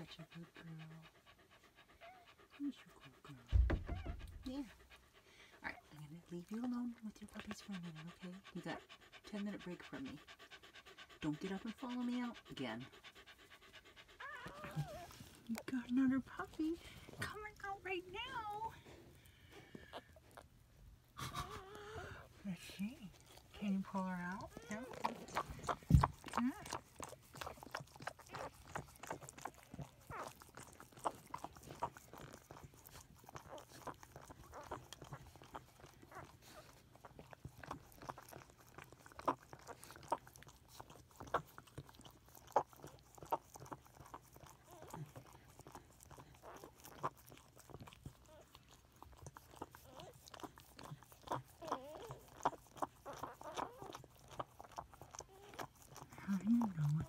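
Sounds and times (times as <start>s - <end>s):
dog licking wet smacking: 22.8s - 57.0s.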